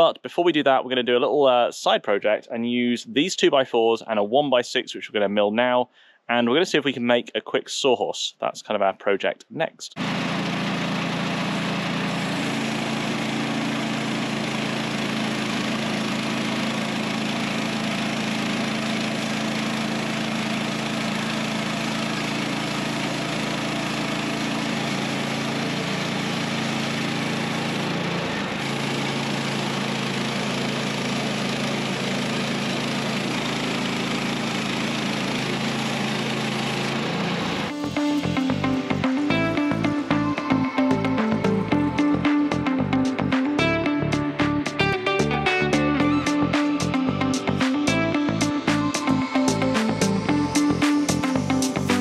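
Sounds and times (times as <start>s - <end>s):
band saw blade cutting log: 10.0s - 41.6s
gas engine drone: 10.0s - 52.0s.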